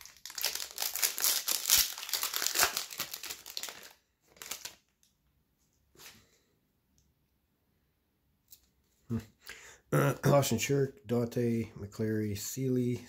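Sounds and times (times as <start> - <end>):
foil wrapper crinkling: 0.0 - 4.9.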